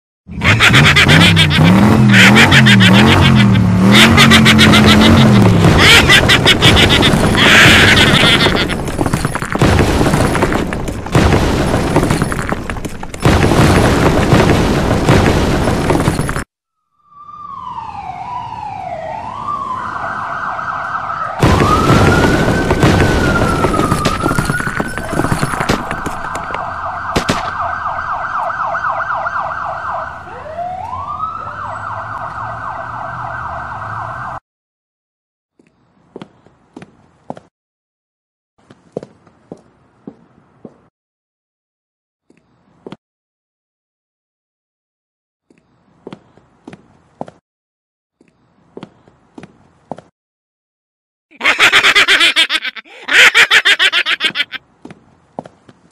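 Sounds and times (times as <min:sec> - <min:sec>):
loud crashing and explosions: 0:04.9 - 0:16.5, 0:21.4 - 0:27.6
police siren wailing: 0:16.9 - 0:34.4.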